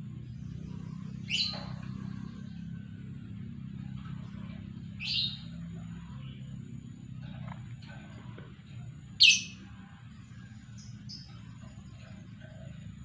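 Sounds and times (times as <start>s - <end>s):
steady low hum: 0.0s - 13.0s
lovebird high-pitched calls: 0.8s - 2.6s, 4.8s - 6.4s, 9.2s - 9.6s.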